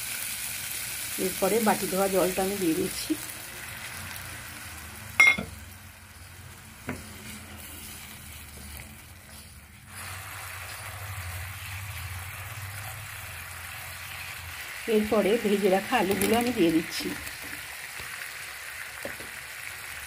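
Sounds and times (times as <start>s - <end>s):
sizzling in a frying pan: 0.0s - 20.0s
sharp ringing clink: 5.2s - 5.5s.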